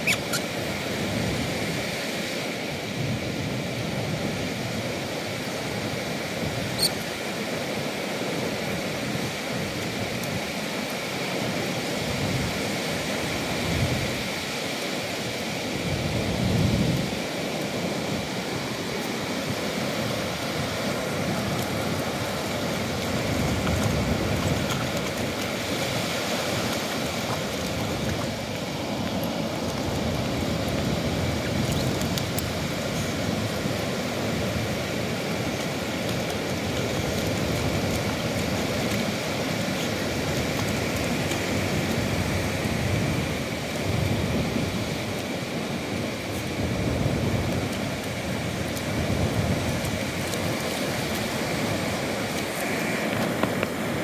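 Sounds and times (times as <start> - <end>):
surf washing: 0.0 - 54.0
wind buffeting microphone: 15.8 - 54.0
dogs' paws splashing and scraping: 17.0 - 54.0.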